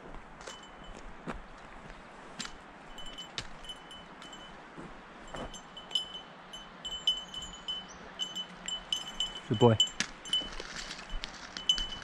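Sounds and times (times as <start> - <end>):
small bell jingling: 2.9 - 4.6, 5.3 - 12.0.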